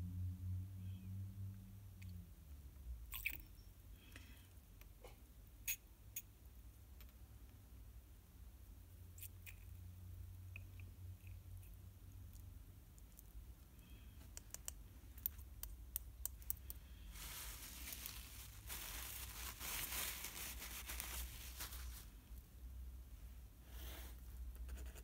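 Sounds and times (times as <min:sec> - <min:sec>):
paper tissue crumpling: 0:16.9 - 0:22.2.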